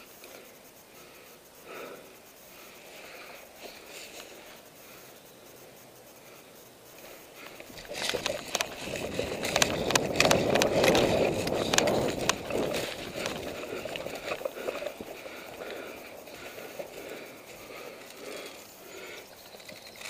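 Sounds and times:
running footsteps on forest floor: 0:07.0 - 0:20.0
sharp clicks and snaps: 0:07.4 - 0:17.0
clothing and gear rustling: 0:07.5 - 0:18.7.

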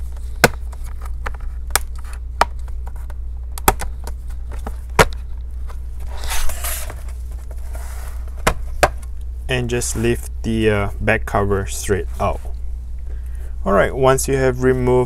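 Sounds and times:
scraping rustle: 0:05.9 - 0:08.4.

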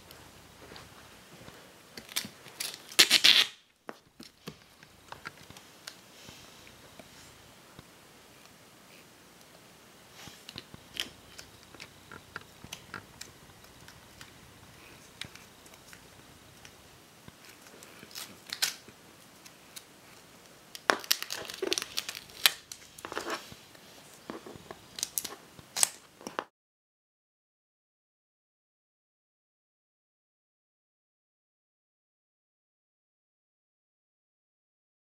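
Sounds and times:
craft knife cutting tape: 0:02.0 - 0:03.6
duct tape crackling and tearing: 0:02.0 - 0:03.6, 0:10.5 - 0:14.4, 0:17.4 - 0:19.9, 0:20.7 - 0:23.4, 0:24.4 - 0:26.0.

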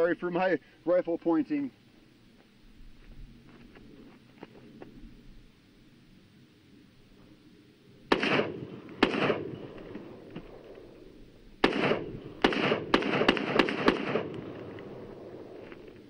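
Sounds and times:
rifle shots with echo: 0:08.1 - 0:10.9, 0:11.6 - 0:15.7.

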